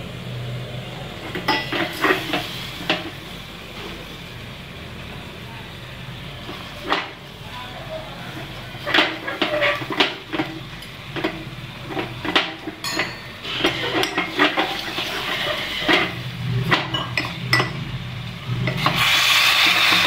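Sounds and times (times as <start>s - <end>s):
spoon scraping a metal pot: 8.4s - 17.8s
steady hiss: 17.4s - 20.0s.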